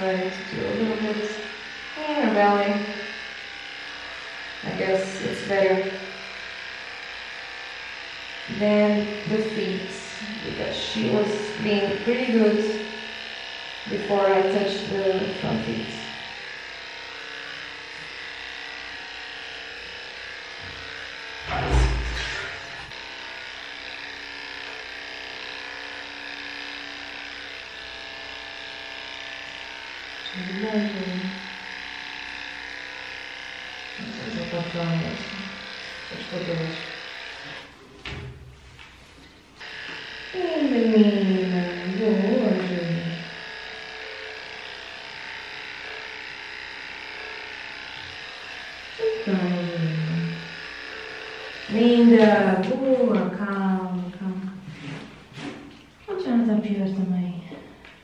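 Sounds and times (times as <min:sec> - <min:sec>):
electric dog clippers humming: 0:00.0 - 0:58.0
loud noise: 0:21.4 - 0:22.9.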